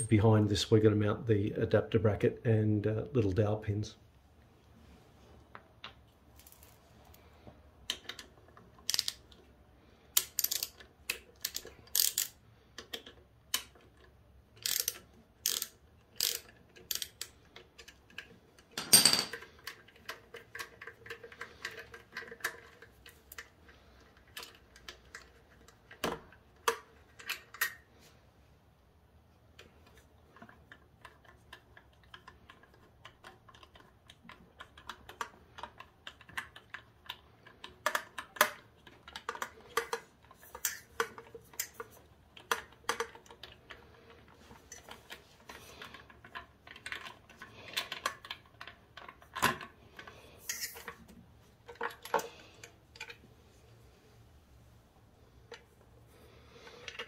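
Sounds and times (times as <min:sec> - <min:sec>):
socket ratchet clicking: 0:07.9 - 0:09.2, 0:10.1 - 0:13.8, 0:14.6 - 0:17.4
metal tool clinks: 0:18.8 - 0:19.4.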